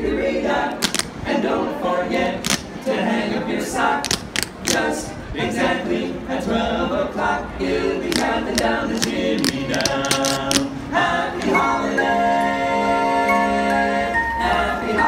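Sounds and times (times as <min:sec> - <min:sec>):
quartet singing in harmony: 0:00.0 - 0:15.0
sharp clicks: 0:00.8 - 0:01.1, 0:02.4 - 0:02.7, 0:04.1 - 0:04.9, 0:08.1 - 0:10.7.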